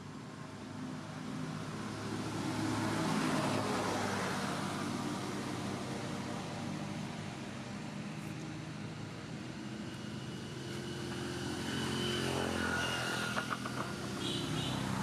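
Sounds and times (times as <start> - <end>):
distant engine drone: 6.6 - 15.0.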